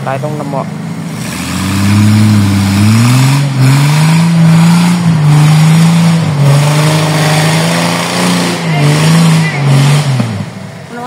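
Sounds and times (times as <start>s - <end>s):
off-road engine revving: 0.0s - 11.0s.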